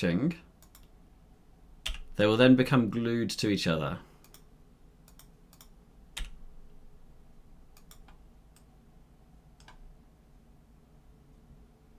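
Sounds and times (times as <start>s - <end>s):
mouse and keyboard clicks: 7.7s - 8.7s.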